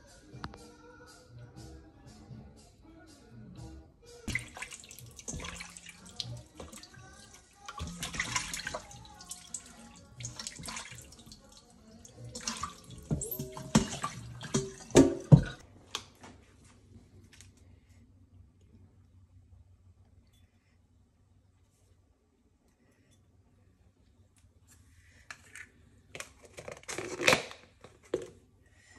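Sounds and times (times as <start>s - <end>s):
tap water running into sink: 4.3s - 15.6s.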